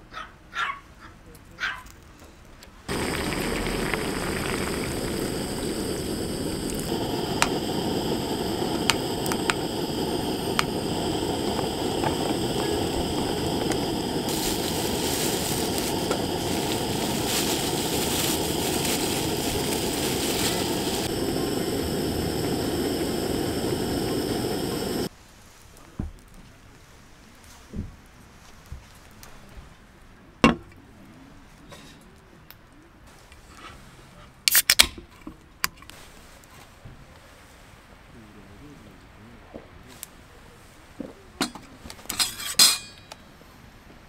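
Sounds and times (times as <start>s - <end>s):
gas stove burner running: 2.9s - 25.1s.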